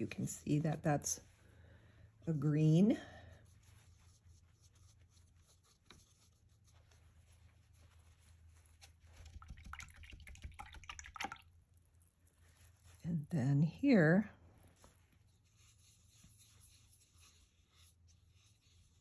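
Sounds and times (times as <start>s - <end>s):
paintbrush rinsed in water cup: 3.7s - 13.0s.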